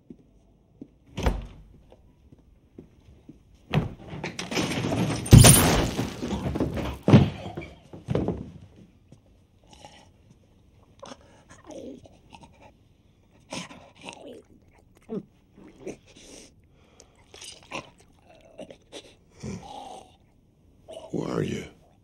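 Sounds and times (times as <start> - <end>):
heavy thump: 3.7 - 8.6
loud clattering with sharp bangs: 4.4 - 7.4.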